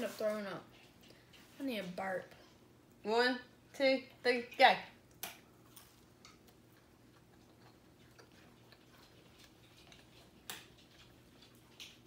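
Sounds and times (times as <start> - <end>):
mouth clicks and lip smacks chewing: 5.1 - 12.0.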